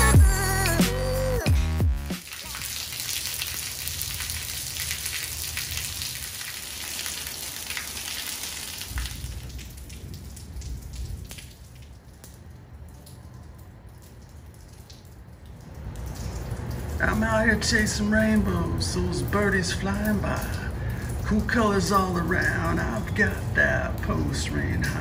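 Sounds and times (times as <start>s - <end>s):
music track: 0.0s - 2.2s
rain falling steadily: 0.0s - 25.0s.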